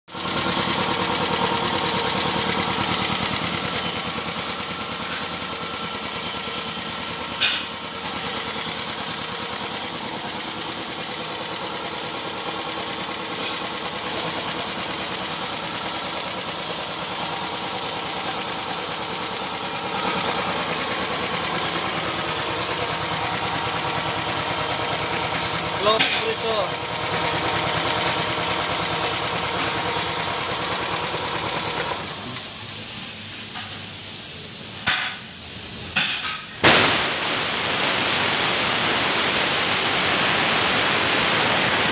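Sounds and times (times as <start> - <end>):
air compressor running: 0.1 - 41.9
high hiss: 32.0 - 41.9.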